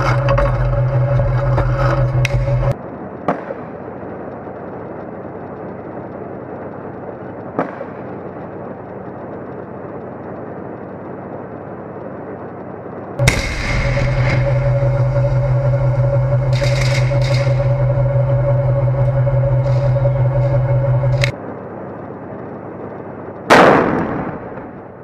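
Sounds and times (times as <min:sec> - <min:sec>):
steady hum: 0:00.0 - 0:25.0
tank engine running: 0:00.0 - 0:25.0
sharp crack of a shot: 0:13.2 - 0:14.4, 0:23.5 - 0:24.7
sudden bang: 0:13.2 - 0:21.3.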